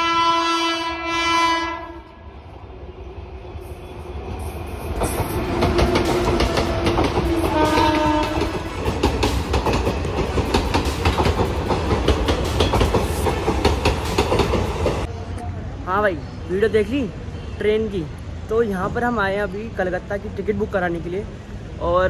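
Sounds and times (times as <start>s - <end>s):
train horn: 0.0s - 2.3s, 5.8s - 8.9s
train wheels clattering over rails: 4.8s - 15.1s.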